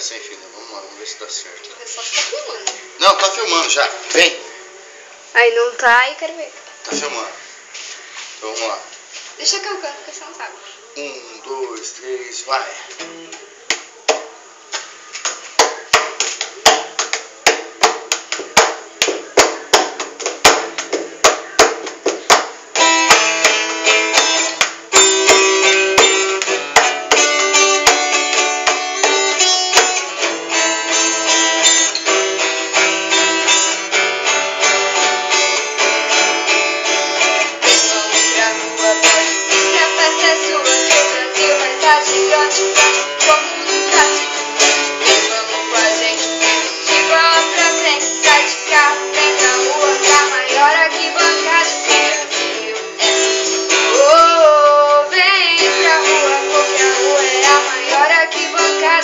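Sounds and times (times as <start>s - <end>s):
acoustic guitars strumming: 15.1s - 59.0s.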